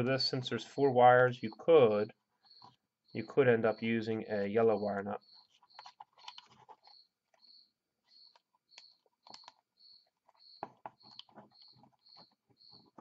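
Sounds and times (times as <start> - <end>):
faint high chirp: 2.4 - 13.0
wires twisting clicks and rustles: 5.2 - 13.0.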